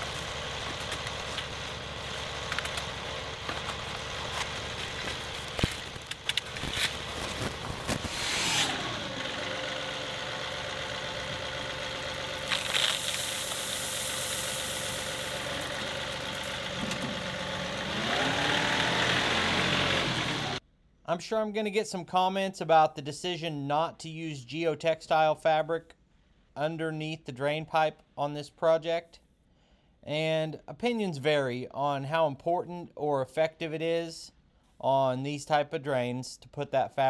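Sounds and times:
tractor diesel engine running: 0:00.0 - 0:20.6
rake scraping in gravel: 0:03.6 - 0:09.0, 0:12.4 - 0:16.7
gravel pouring hiss: 0:12.4 - 0:16.8.

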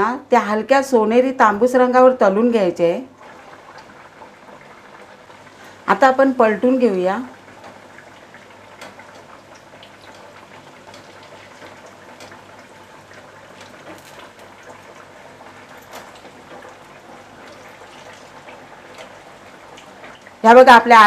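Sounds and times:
food sizzling in hot oil: 0:02.9 - 0:21.0
oil popping: 0:07.4 - 0:20.4.

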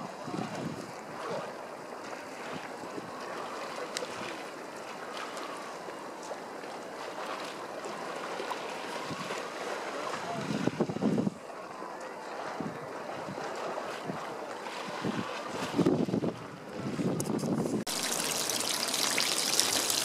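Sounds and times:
wind: 0:00.0 - 0:20.0
river water rushing: 0:17.9 - 0:20.0
water sloshing against wall: 0:17.9 - 0:20.0.

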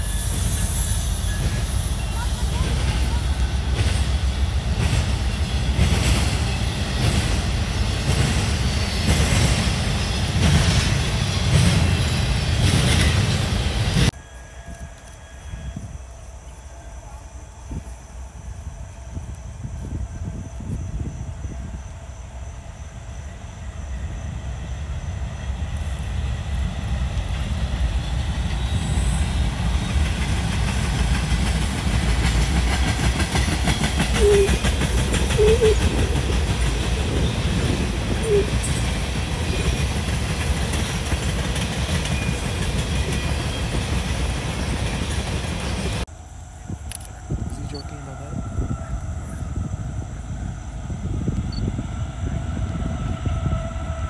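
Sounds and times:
train wheels clicking over rail joints: 0:00.0 - 0:15.3, 0:25.7 - 0:46.0
train rumble: 0:00.0 - 0:54.0.

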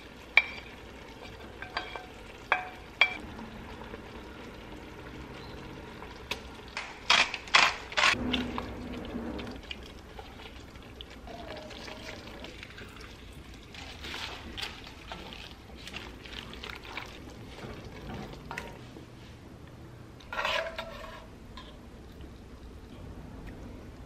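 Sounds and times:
wooden spoon stirring in pot: 0:00.0 - 0:03.2, 0:08.3 - 0:19.4, 0:20.2 - 0:22.4.

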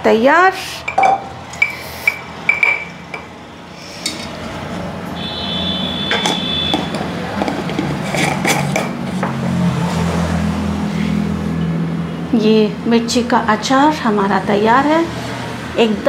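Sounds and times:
metal spoon clinking glass jar: 0:00.9 - 0:03.3.

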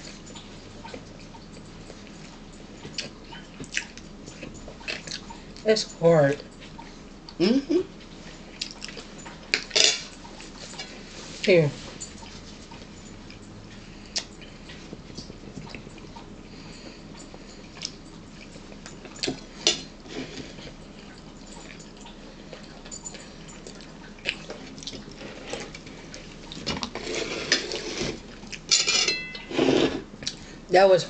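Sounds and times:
cutlery clinking on plates: 0:09.2 - 0:10.2, 0:28.7 - 0:30.0.

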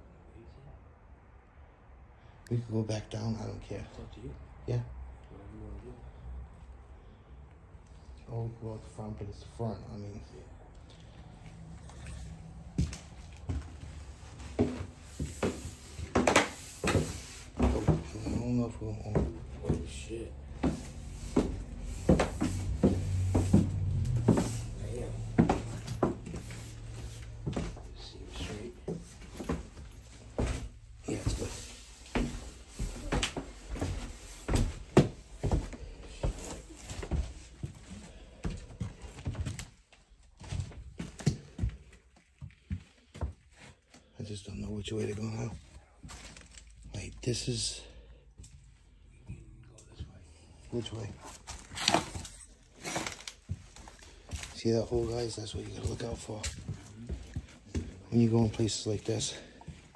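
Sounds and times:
footsteps knocking and scuffing: 0:11.8 - 0:43.8, 0:48.4 - 0:59.9.

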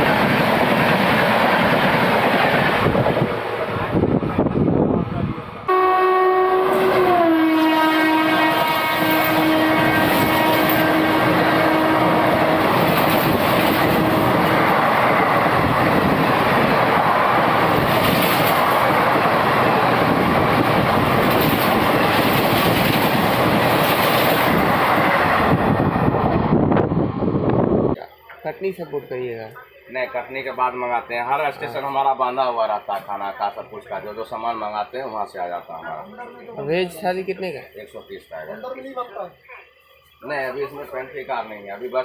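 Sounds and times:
locomotive horn blast: 0:05.7 - 0:14.7
train coaches clattering past: 0:06.6 - 0:25.7.

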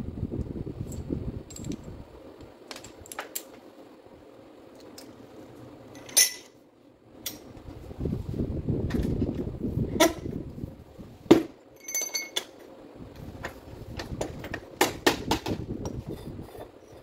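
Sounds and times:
tools handled on metal workbench: 0:05.9 - 0:06.6, 0:11.8 - 0:12.7
metallic clinks: 0:11.8 - 0:12.5.

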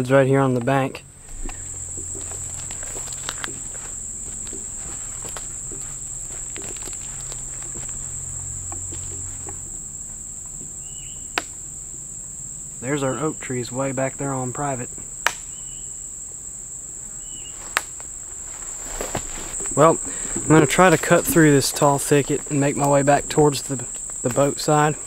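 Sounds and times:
insects chorus: 0:00.0 - 0:25.0
footsteps through brush: 0:01.2 - 0:10.2, 0:17.3 - 0:24.7.

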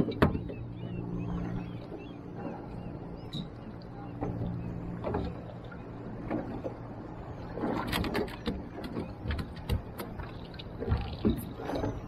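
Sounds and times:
knocks and clatter in metal boat: 0:00.0 - 0:00.7, 0:03.3 - 0:12.0.

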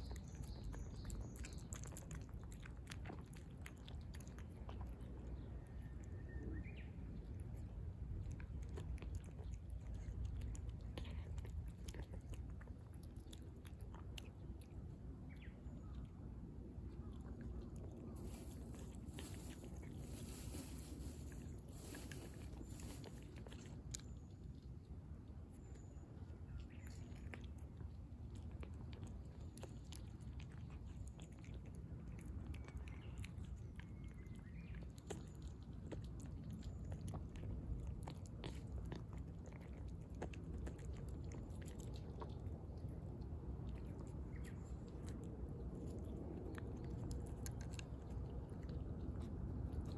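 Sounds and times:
cat crunching dry kibble: 0:00.0 - 0:49.9.

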